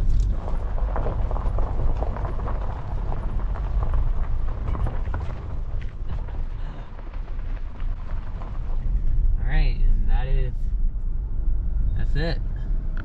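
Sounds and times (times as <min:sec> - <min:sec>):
stones crunching and pinging: 0:00.0 - 0:09.4
car tyres rolling on gravel: 0:00.0 - 0:13.0.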